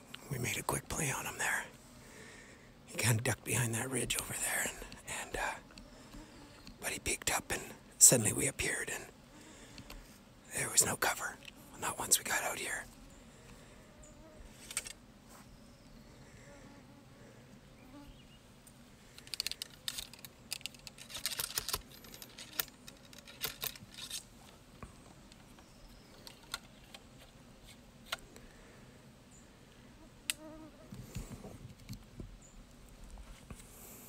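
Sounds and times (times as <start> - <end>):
ramrod clicking and scraping in barrel: 19.2 - 24.3.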